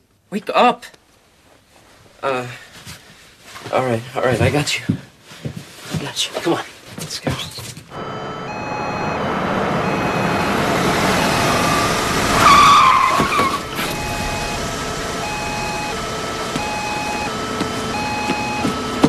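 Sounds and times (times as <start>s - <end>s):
car braking to a stop: 7.9s - 19.0s
car engine and road noise: 7.9s - 19.0s
tyre squeal: 11.2s - 14.6s.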